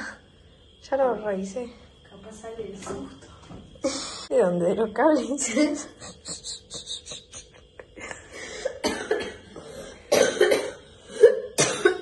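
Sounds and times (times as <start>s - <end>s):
person coughing: 8.6s - 12.0s.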